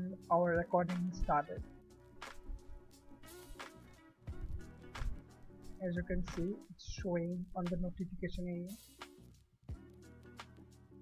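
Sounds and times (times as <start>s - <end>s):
background music with drum beat: 0.0s - 10.8s.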